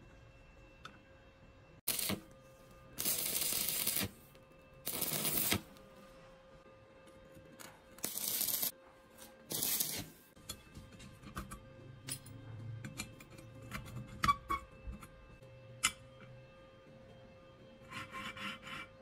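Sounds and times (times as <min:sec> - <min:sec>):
arc welding crackling: 0:01.9 - 0:02.3, 0:03.0 - 0:05.8, 0:08.0 - 0:08.7, 0:09.5 - 0:10.3.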